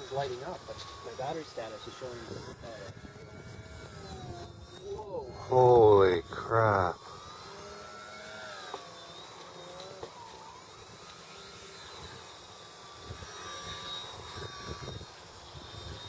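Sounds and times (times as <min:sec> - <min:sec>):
model airplane motor whining: 0:00.0 - 0:16.0
low rumble of wind: 0:02.2 - 0:08.0.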